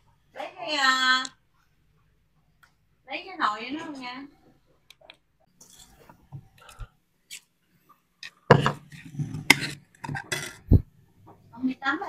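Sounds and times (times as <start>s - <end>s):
pots and utensils scraping: 8.2s - 10.8s
kitchenware clattering: 8.4s - 10.8s.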